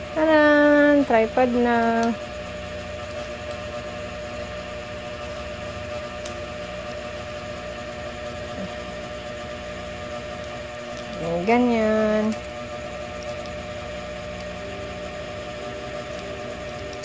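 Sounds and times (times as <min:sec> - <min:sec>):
steady background hum: 0:00.0 - 0:17.0.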